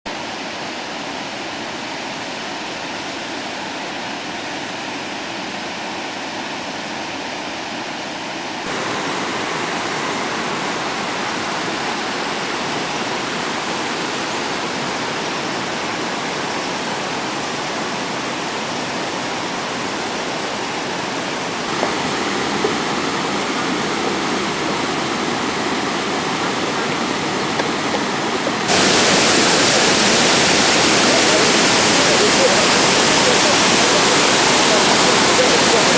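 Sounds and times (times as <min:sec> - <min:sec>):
waterfall rushing: 0:00.1 - 0:35.9.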